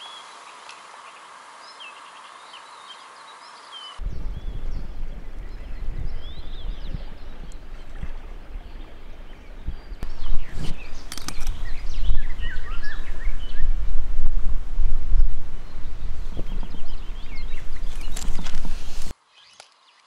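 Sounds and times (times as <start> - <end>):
songbirds chirping: 0.0 - 13.9, 14.6 - 20.0
wind buffeting microphone: 4.0 - 19.1
sharp clicks: 11.0 - 11.7.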